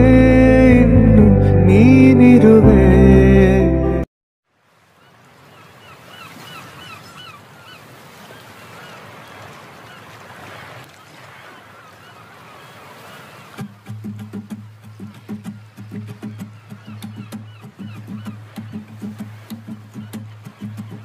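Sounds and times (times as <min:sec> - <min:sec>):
short bird calls: 0:15.0 - 0:21.0.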